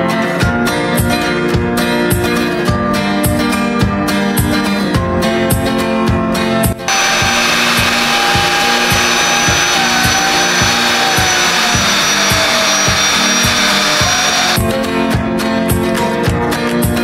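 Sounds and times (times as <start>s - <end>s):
electric air pump running: 6.9s - 14.6s.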